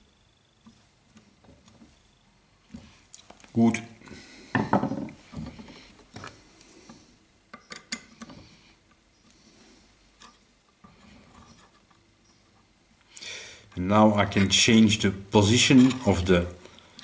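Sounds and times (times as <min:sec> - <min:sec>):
small metal clicks and taps: 0:07.5 - 0:09.0.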